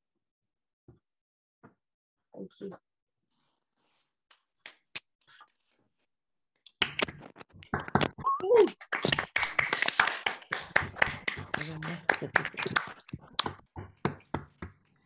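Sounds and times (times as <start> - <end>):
people clapping: 6.7 - 14.7.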